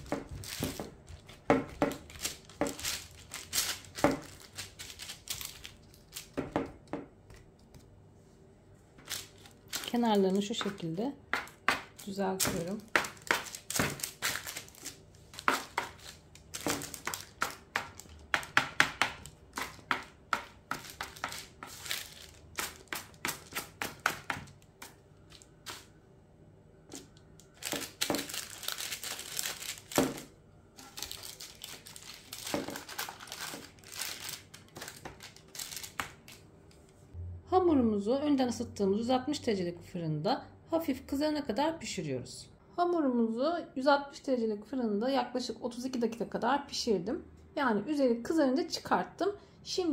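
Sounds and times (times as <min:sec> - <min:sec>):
parchment paper crinkling: 0:00.0 - 0:06.4, 0:09.0 - 0:10.8, 0:11.5 - 0:25.9, 0:26.9 - 0:36.4
dough scraper tapping and scraping: 0:16.6 - 0:21.8, 0:22.6 - 0:24.5.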